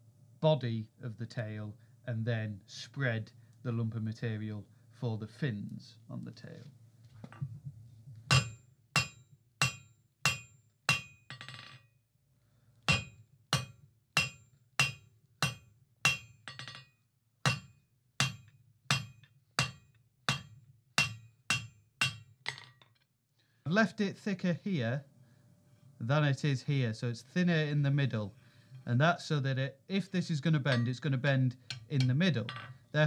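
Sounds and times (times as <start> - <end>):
hammer striking hot steel on anvil: 8.3 - 11.7, 12.9 - 16.9, 17.5 - 22.6, 30.7 - 31.0, 31.7 - 32.7
metallic ring: 8.3 - 11.9, 12.9 - 22.8, 30.7 - 31.0, 31.7 - 32.8.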